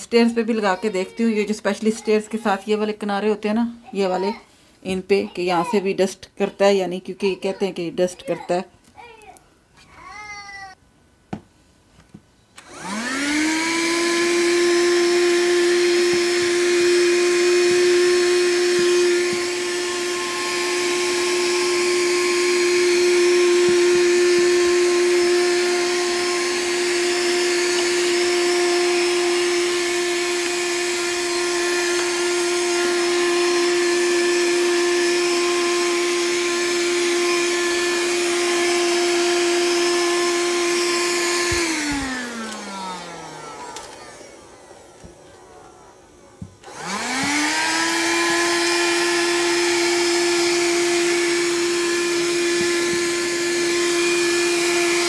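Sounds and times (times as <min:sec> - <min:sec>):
handheld vacuum cleaner whine: 0:12.6 - 0:55.0.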